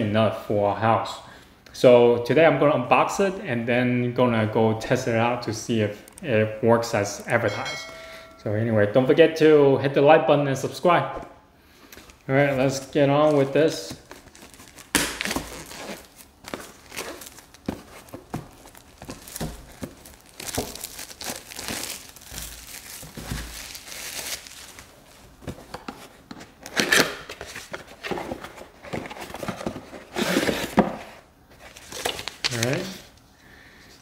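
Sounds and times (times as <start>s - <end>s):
plastic wrap crinkling: 11.9s - 27.8s, 31.6s - 33.2s.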